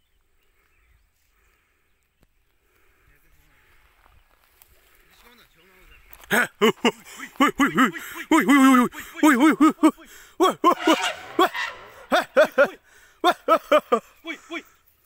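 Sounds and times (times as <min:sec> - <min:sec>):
people shouting repeated calls: 0:06.6 - 0:14.7.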